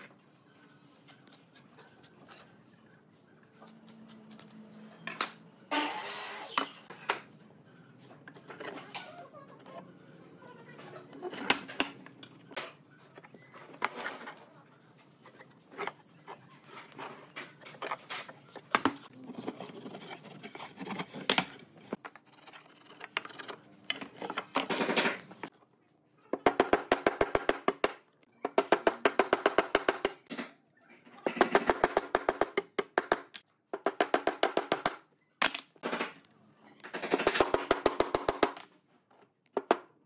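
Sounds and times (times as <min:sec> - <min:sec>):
tools scraping and knocking wood: 0:10.8 - 0:25.5.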